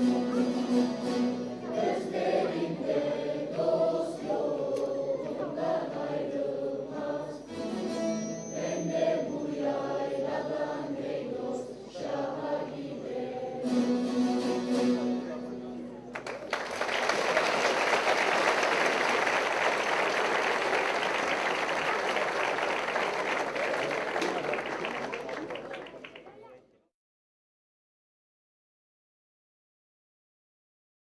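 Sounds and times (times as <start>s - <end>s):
children's choir singing: 0.0s - 14.7s
long-necked lutes playing: 7.5s - 8.7s.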